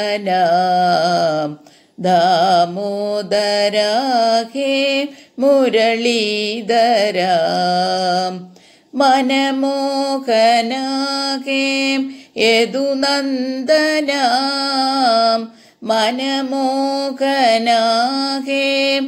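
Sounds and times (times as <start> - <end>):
person singing devotional chant: 0.0 - 19.0.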